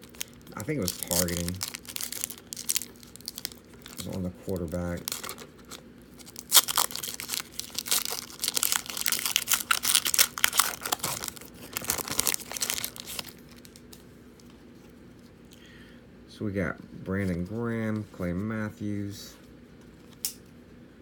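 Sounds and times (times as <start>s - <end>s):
foil wrapper ripping: 0.0s - 13.8s
foil wrapper crinkling: 0.0s - 14.0s.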